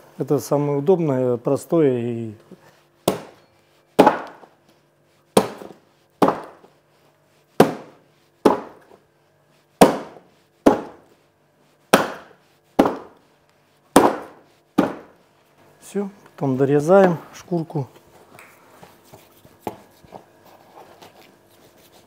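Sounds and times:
heavy blade chopping meat: 0:03.0 - 0:03.4, 0:04.0 - 0:04.4, 0:05.4 - 0:06.6, 0:07.6 - 0:08.8, 0:09.8 - 0:11.0, 0:11.9 - 0:13.2, 0:13.9 - 0:15.1.

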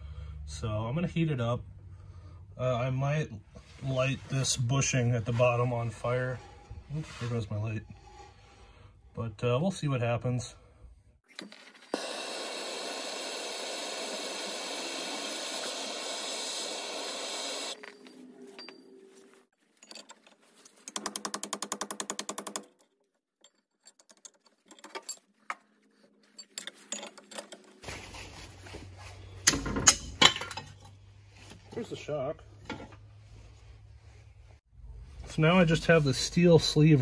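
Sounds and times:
gas torch hissing: 0:11.9 - 0:17.8.

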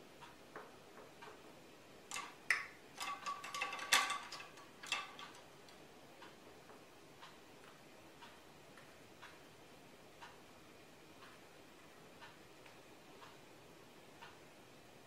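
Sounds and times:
clock ticking faintly: 0:00.1 - 0:14.5
paintbrushes clinking and clattering: 0:03.0 - 0:05.4.

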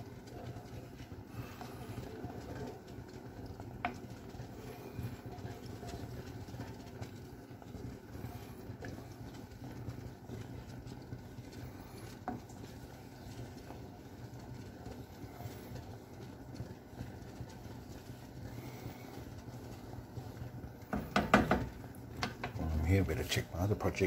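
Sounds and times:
sauce simmering: 0:00.0 - 0:24.0
spoon stirring thick sauce: 0:00.0 - 0:24.0
spoon knocking against pan: 0:20.9 - 0:22.6.

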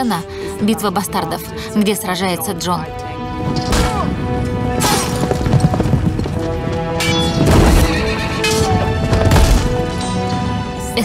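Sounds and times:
film score music: 0:00.0 - 0:11.0
hooves: 0:04.4 - 0:10.6
horses neighing: 0:07.6 - 0:09.4
crashes and thuds of fighting: 0:09.1 - 0:09.8.

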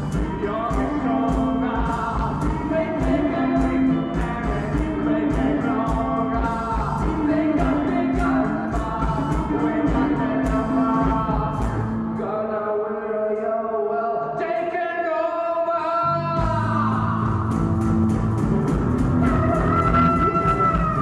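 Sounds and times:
drum kit: 0:00.0 - 0:12.0, 0:16.4 - 0:21.0
man singing: 0:00.0 - 0:17.5, 0:19.2 - 0:21.0
electric guitar: 0:17.0 - 0:21.0.

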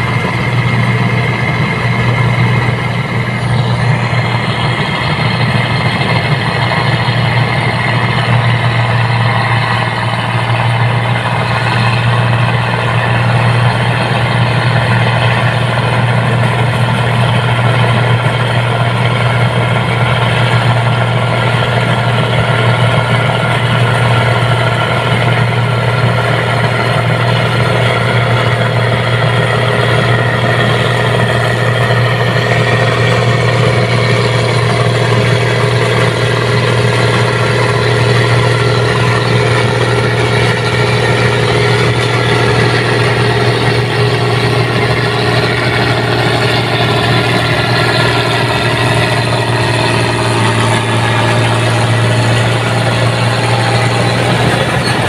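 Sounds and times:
combine harvester droning: 0:00.0 - 0:55.0.

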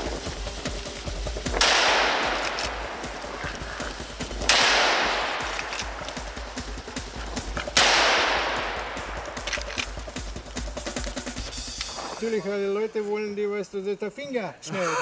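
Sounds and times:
rifle shots with echo: 0:01.5 - 0:10.2.

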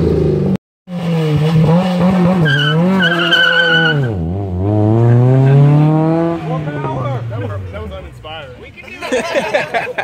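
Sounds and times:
car engine revving high: 0:00.0 - 0:07.5
tires squealing: 0:01.0 - 0:07.9.

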